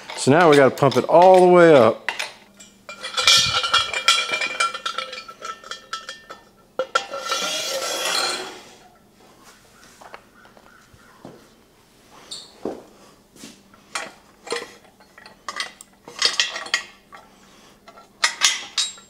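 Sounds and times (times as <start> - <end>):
metal clinking and ringing: 0.1 - 9.0, 12.3 - 12.6, 17.9 - 19.0.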